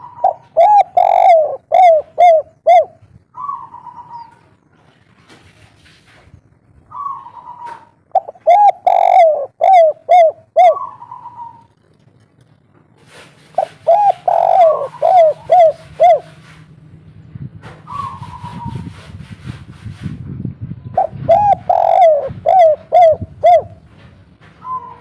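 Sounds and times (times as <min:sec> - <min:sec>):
dove cooing song: 0:00.0 - 0:04.5, 0:06.9 - 0:11.7, 0:13.6 - 0:16.4, 0:17.9 - 0:18.9, 0:20.9 - 0:23.9, 0:24.6 - 0:25.0.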